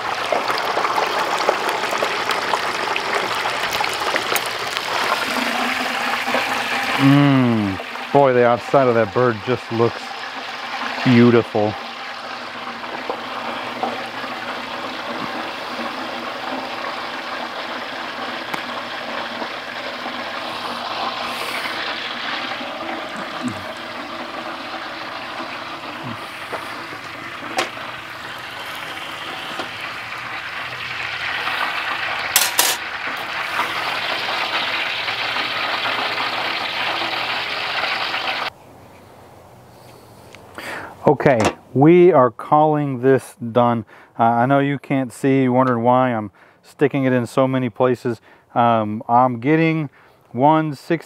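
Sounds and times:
hot oil sizzling in a pot: 0:00.0 - 0:38.5.

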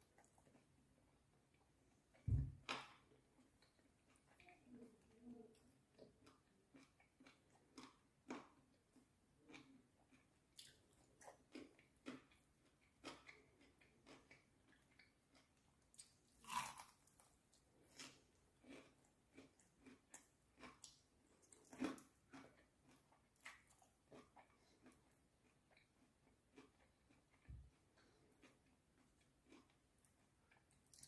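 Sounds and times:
crackly chewing: 0:00.0 - 0:31.0
crunchy bites: 0:16.4 - 0:17.2.

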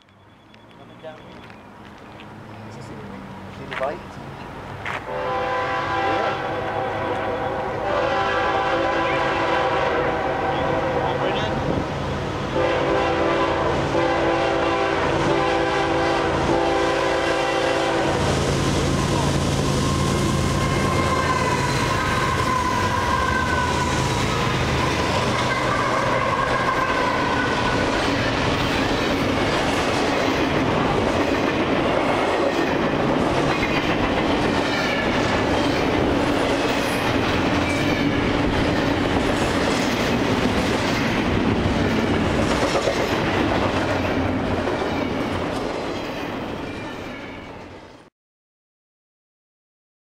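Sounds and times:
freight cars rumbling over rails: 0:00.0 - 0:47.6
diesel locomotives passing: 0:00.0 - 0:48.1
train horn: 0:05.1 - 0:11.6, 0:12.5 - 0:18.4, 0:19.0 - 0:28.4.

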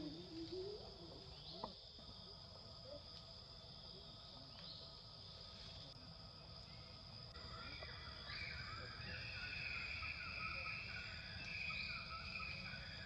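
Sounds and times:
insects buzzing: 0:00.0 - 0:13.0
faint chirping calls: 0:06.4 - 0:13.0.

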